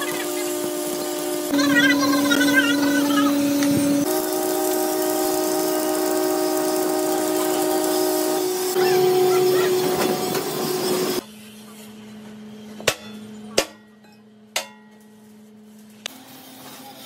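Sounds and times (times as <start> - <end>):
hammer striking steel plate: 12.8 - 15.0.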